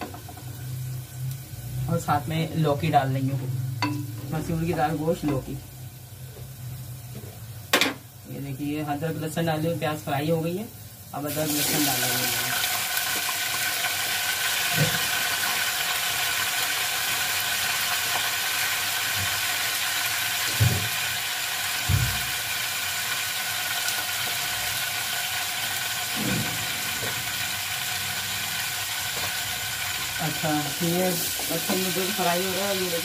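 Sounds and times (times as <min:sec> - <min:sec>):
onions sizzling in hot oil: 0:00.0 - 0:33.0.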